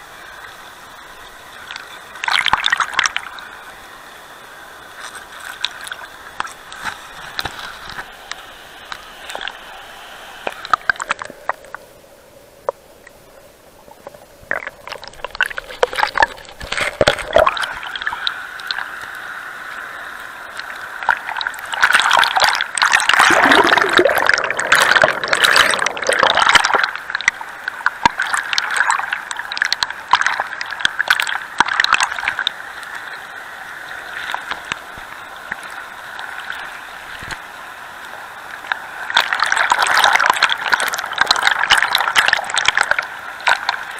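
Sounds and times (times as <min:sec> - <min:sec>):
underwater bubbling and churning: 0:00.0 - 0:43.9
river water sloshing and gurgling: 0:01.3 - 0:03.4, 0:13.8 - 0:19.0, 0:20.5 - 0:43.9.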